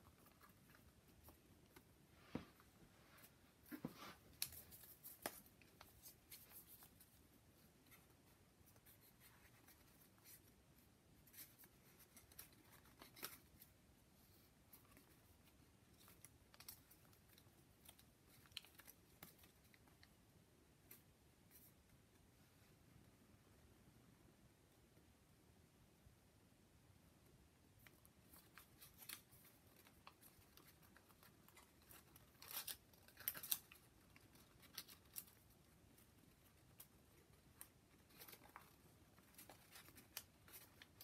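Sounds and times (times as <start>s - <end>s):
paper crinkling and rustling: 27.8s - 41.0s.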